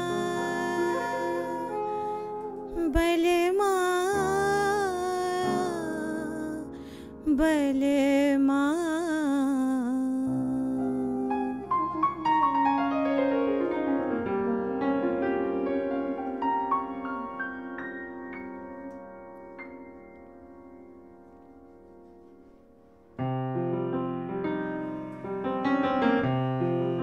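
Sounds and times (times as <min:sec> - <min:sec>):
soprano saxophone melody: 0:00.0 - 0:06.6, 0:10.3 - 0:19.0
piano: 0:00.0 - 0:27.0.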